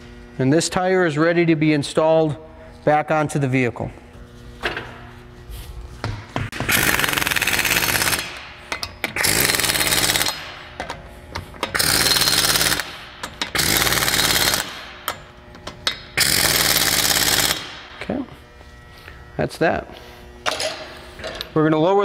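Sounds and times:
impact wrench bursts: 6.5s - 18.0s.

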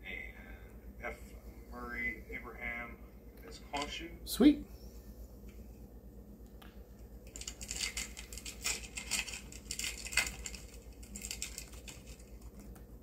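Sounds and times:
foil wrapper tearing and crinkling: 7.4s - 12.6s.

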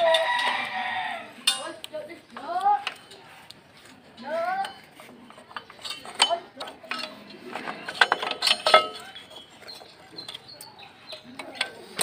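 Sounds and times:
ringing metal clanks: 1.4s - 1.8s, 4.6s - 12.0s
metal clinks and knocks: 4.6s - 12.0s.

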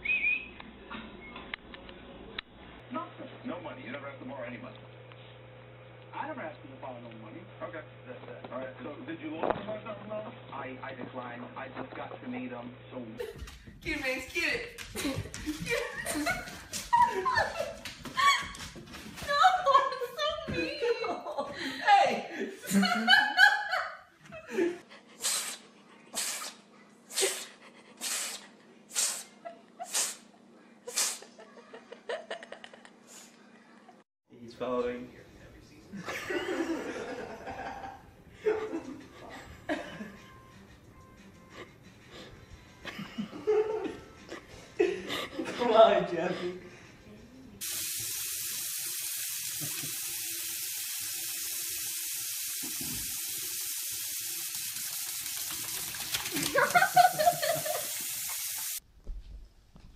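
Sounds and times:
cat sneezing: 25.2s - 30.3s, 30.9s - 31.4s
faucet running into sink: 47.6s - 58.8s.

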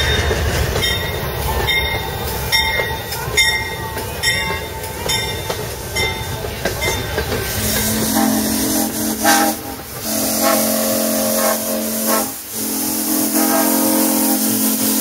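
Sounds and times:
background hiss: 7.3s - 15.0s
locomotive whistle blasts: 7.5s - 15.0s.

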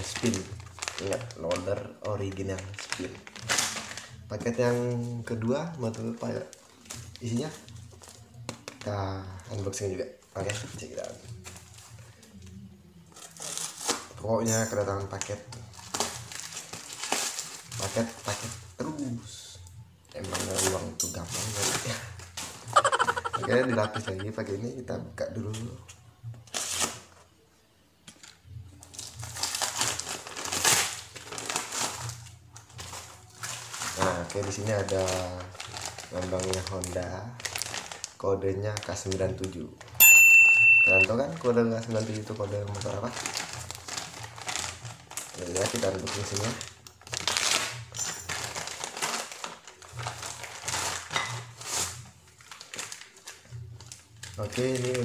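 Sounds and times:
plastic wrapping crinkling: 0.0s - 8.9s, 15.2s - 18.6s, 28.9s - 40.0s, 41.1s - 55.0s.

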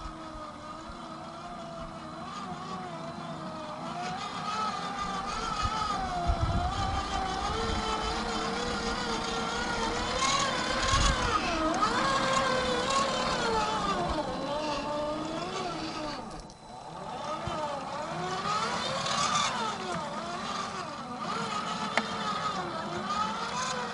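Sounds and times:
electric motor and gearbox whining: 0.0s - 23.9s
wind buffeting microphone: 5.0s - 16.4s.

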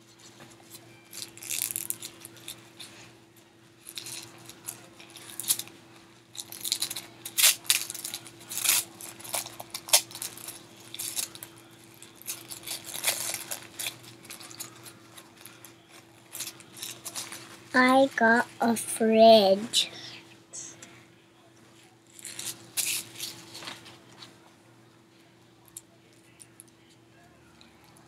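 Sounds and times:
faint steady hum: 0.0s - 28.0s
plastic wrapper crinkling: 1.0s - 2.9s, 3.8s - 5.7s, 6.3s - 17.6s, 22.1s - 24.1s.

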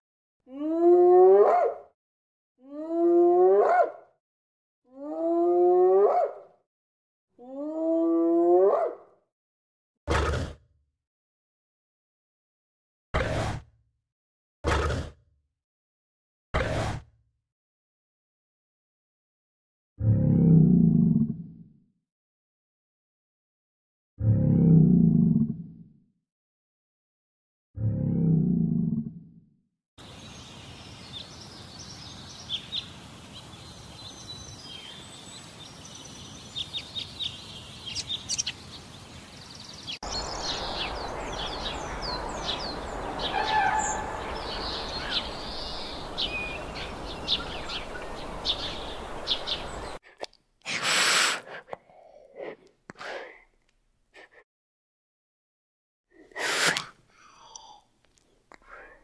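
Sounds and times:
small birds chirping: 30.0s - 50.0s
outdoor background noise: 30.0s - 51.8s.

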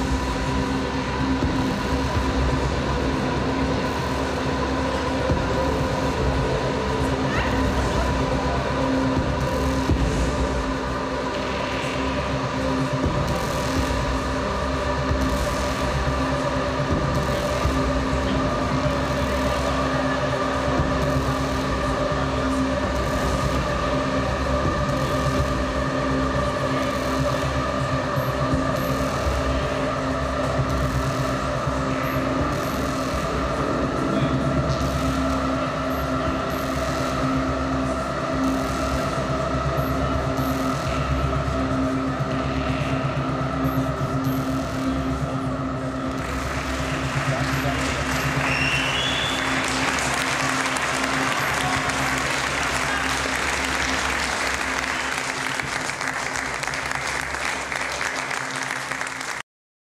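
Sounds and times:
noisy electronic drone: 0.0s - 59.4s
audience applauding: 46.4s - 59.4s.

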